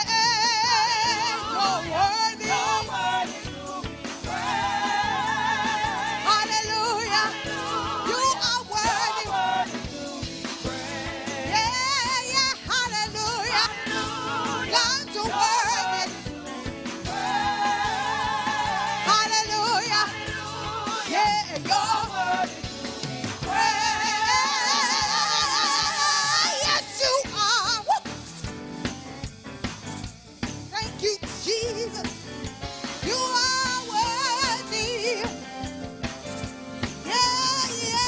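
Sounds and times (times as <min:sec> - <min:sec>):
sustained instrumental backing: 0:00.1 - 0:31.0, 0:31.8 - 0:38.0
singer with wide vibrato: 0:23.4 - 0:27.9.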